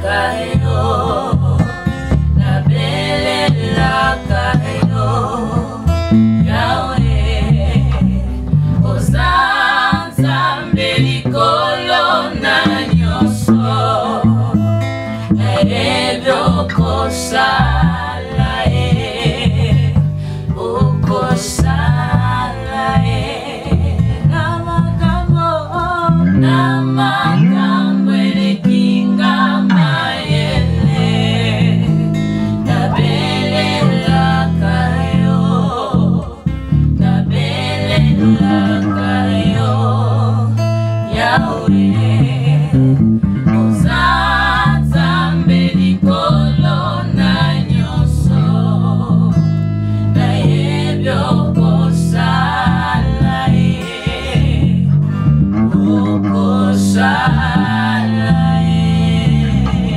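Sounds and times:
acoustic guitar strumming: 0.0 - 47.7
electric bass guitar: 0.0 - 59.9
group singing in harmony: 0.0 - 59.9.

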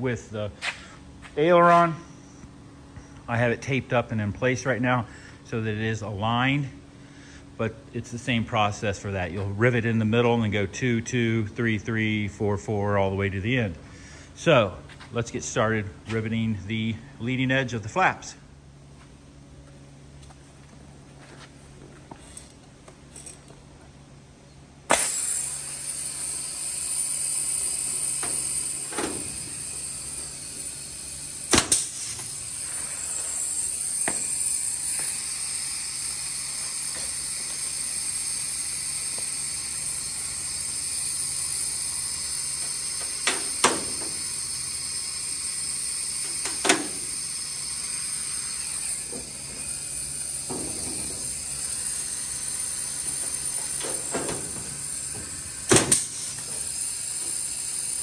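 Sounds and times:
rivet gun snaps: 24.9 - 25.2
air hissing: 24.9 - 58.0.

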